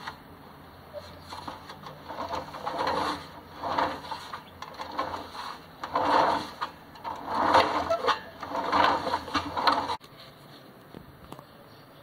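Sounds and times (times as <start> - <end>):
concrete mixer running: 1.2 - 10.0
clicking rattle of chain drive: 1.4 - 10.0.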